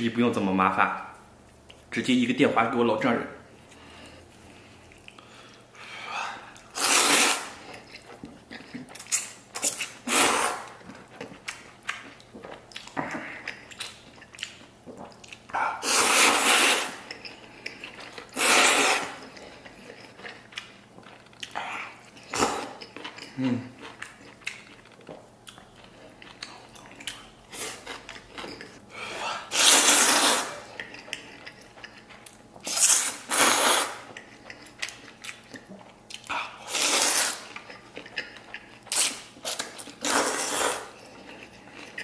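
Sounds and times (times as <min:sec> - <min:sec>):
man slurping noodles: 0:06.7 - 0:07.6, 0:10.0 - 0:10.7, 0:15.8 - 0:17.0, 0:18.4 - 0:19.2, 0:29.3 - 0:30.6, 0:32.7 - 0:34.0, 0:36.6 - 0:37.4, 0:40.0 - 0:40.9.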